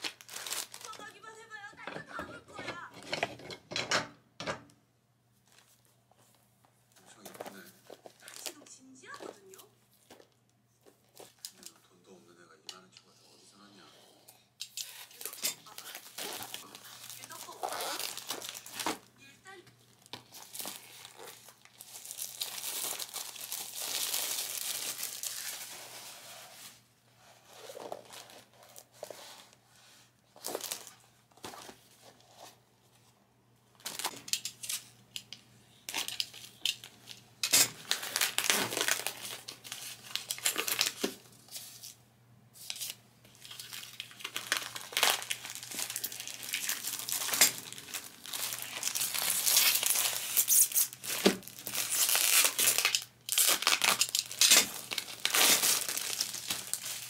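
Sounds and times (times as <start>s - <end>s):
plastic wrapping crinkling and tearing: 0.0s - 2.0s, 7.2s - 10.4s, 14.6s - 19.1s, 19.8s - 26.7s, 27.5s - 29.5s, 30.3s - 31.8s, 33.7s - 42.0s, 42.6s - 57.0s.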